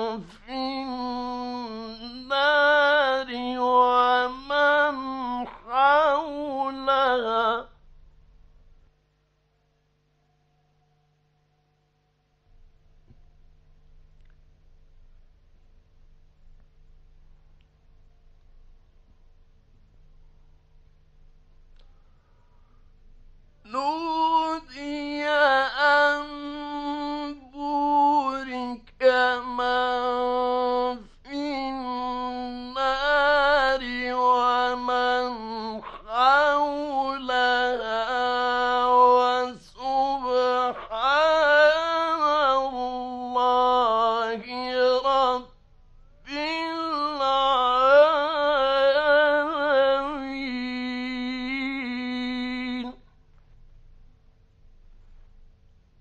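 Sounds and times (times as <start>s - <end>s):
man chanting melodically: 0.0s - 7.8s, 23.6s - 45.6s, 46.2s - 53.1s.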